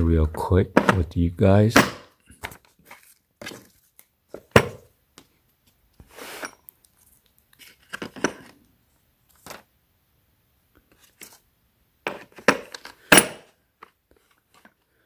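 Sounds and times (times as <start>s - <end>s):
paper rustling: 2.4s - 4.1s.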